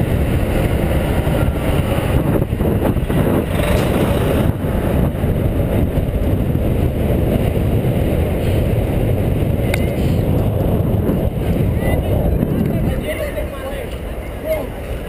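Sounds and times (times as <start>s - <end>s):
wind on microphone: 0.0s - 14.4s
city traffic rumble: 0.0s - 15.0s.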